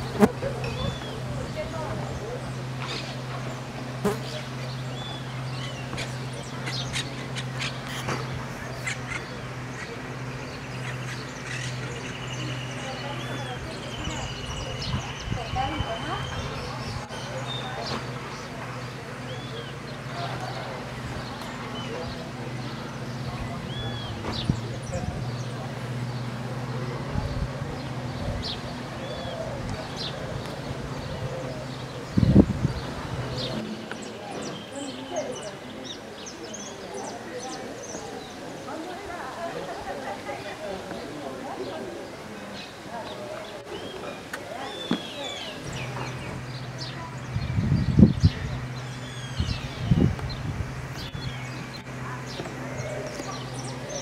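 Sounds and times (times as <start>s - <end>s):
birds harsh calls: 0.0s - 40.0s, 40.8s - 54.0s.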